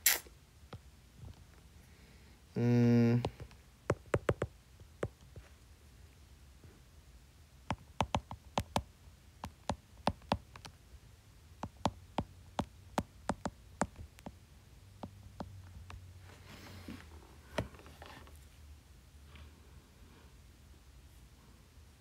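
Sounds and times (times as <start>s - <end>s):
stylus tapping on glass screen: 3.2s - 5.2s, 7.7s - 10.4s, 11.6s - 14.4s.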